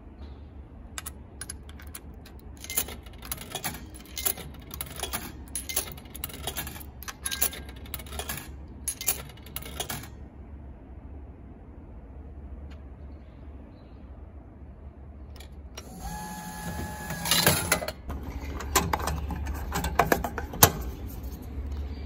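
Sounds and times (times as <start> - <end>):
coins clinking into machine: 1.0 - 10.2, 15.4 - 20.7.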